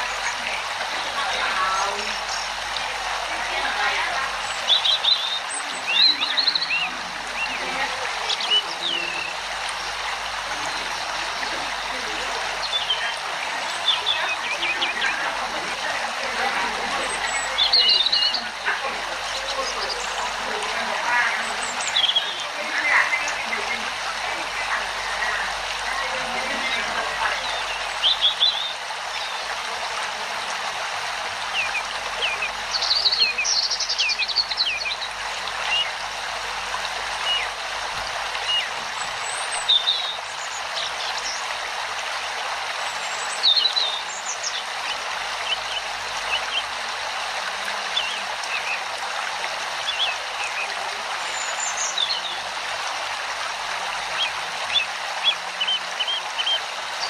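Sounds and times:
small birds chirping: 0:00.0 - 0:30.6, 0:31.4 - 0:41.6, 0:42.7 - 0:46.9, 0:47.5 - 0:48.9, 0:49.8 - 0:52.7, 0:53.9 - 0:57.0
stream running water: 0:00.0 - 0:57.0.

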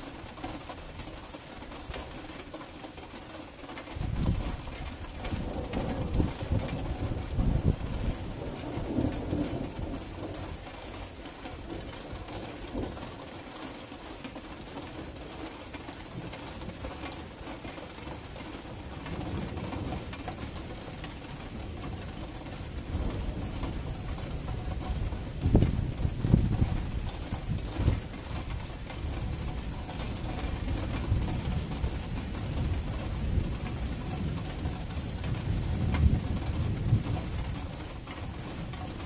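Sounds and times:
rain falling: 0:00.0 - 0:39.0
distant thunder rolling: 0:29.1 - 0:39.0.

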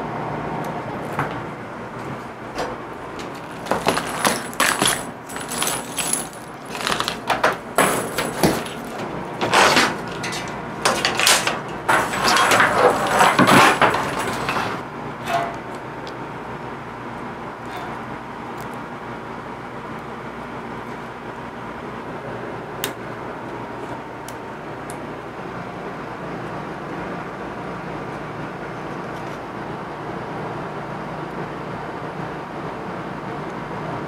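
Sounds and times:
parts rattling and clattering: 0:02.6 - 0:15.8.

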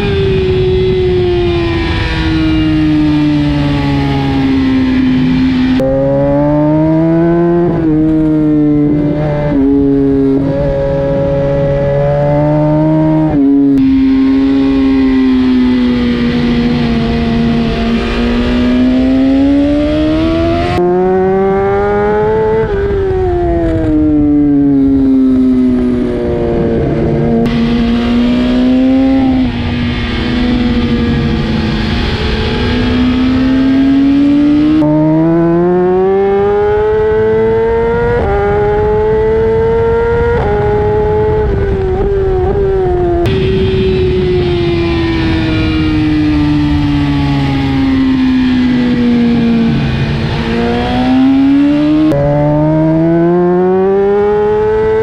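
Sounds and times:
motorcycle engine revving: 0:00.0 - 0:55.0
wind rushing: 0:25.4 - 0:35.4, 0:38.3 - 0:53.4.

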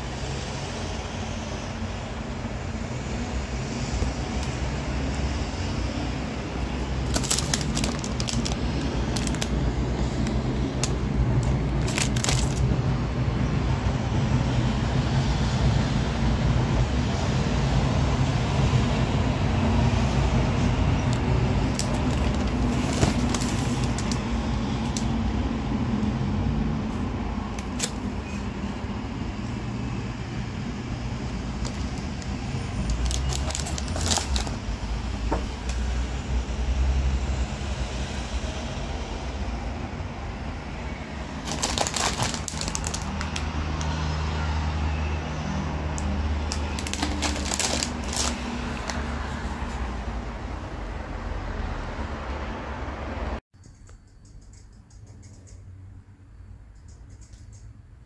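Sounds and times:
plastic packets crinkling: 0:06.8 - 0:12.8, 0:21.1 - 0:25.1, 0:27.6 - 0:28.1, 0:31.4 - 0:34.8, 0:41.3 - 0:43.9, 0:46.4 - 0:49.4.

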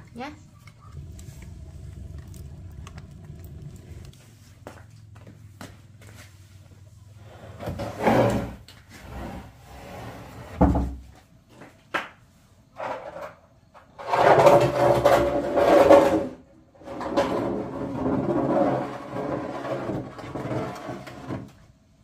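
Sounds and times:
wood scraping and rubbing: 0:07.3 - 0:10.7, 0:14.0 - 0:21.6.

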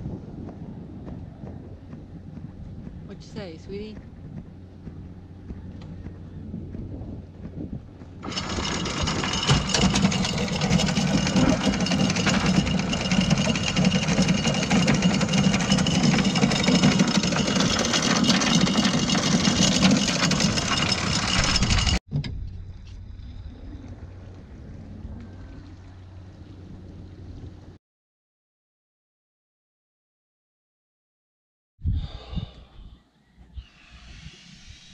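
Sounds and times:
anchor chain rattling: 0:08.2 - 0:22.0.

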